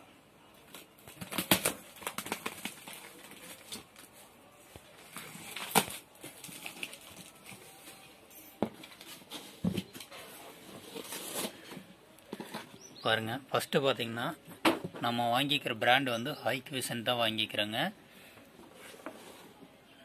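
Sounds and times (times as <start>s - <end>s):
packing tape tearing: 0.7s - 4.1s, 5.0s - 7.6s, 10.8s - 11.7s.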